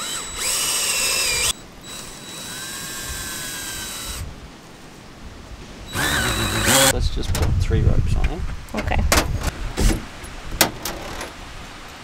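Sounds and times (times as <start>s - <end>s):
cordless drill driving into sand: 5.9s - 6.9s.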